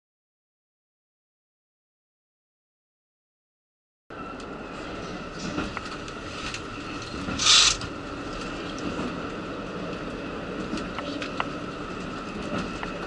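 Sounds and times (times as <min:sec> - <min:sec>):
railcar running rumble: 0:04.1 - 0:13.0.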